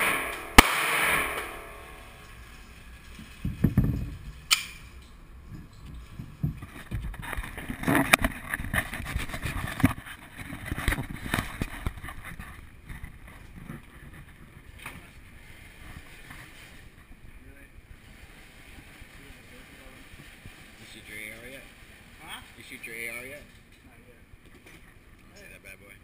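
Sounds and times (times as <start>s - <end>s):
rubbing against microphone: 6.1s - 17.3s.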